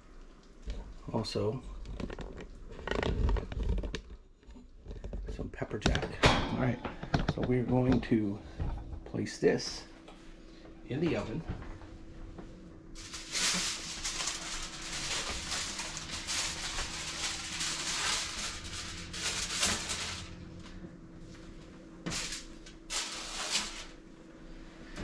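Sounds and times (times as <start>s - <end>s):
aluminium foil rustling and crinkling: 1.4s - 5.5s, 12.9s - 24.0s
foil scraping rustles: 13.0s - 24.0s.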